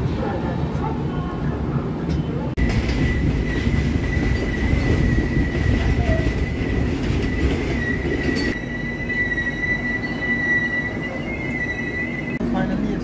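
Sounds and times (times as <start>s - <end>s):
rumble of wheels on track: 0.0s - 13.0s
train wheel squeal: 2.6s - 12.4s.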